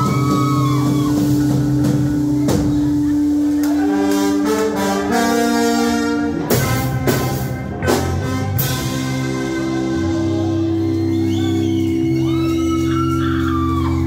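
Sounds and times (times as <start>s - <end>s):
loud drum and cymbal hits: 0.0s - 10.5s
ska band playing: 0.0s - 14.0s
horn section holding long notes: 3.6s - 12.9s.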